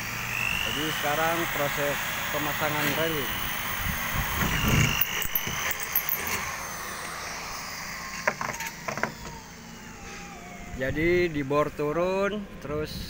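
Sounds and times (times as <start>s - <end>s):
metallic clicks and clinks: 4.9s - 6.5s.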